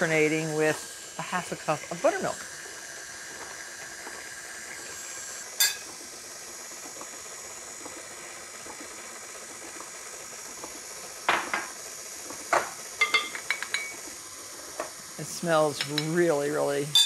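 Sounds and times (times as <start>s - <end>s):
stand mixer running: 0.0s - 17.0s
measuring cup clinking on bowl: 5.6s - 5.9s, 13.0s - 14.0s.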